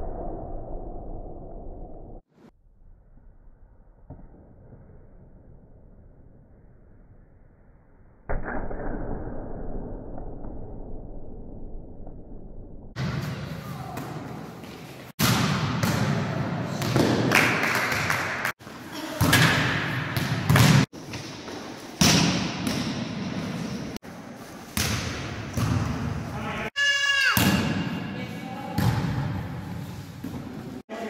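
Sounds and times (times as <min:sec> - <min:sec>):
players' voices: 0:26.2 - 0:31.0.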